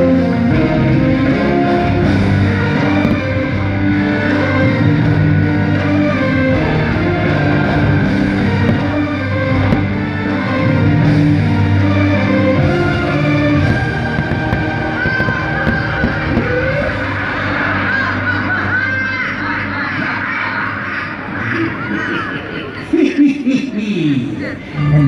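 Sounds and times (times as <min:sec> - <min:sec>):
loud rock music with guitar: 0:00.0 - 0:18.4.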